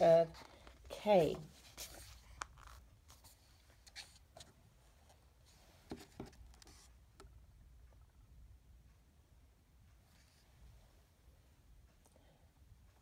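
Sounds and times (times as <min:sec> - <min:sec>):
book pages turning: 0:00.3 - 0:04.5.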